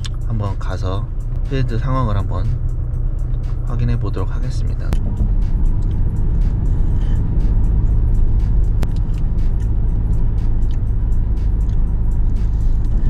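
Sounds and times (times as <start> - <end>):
background music with beat: 0.0 - 13.0
car engine rumble: 0.0 - 13.0
road noise inside car: 0.0 - 13.0.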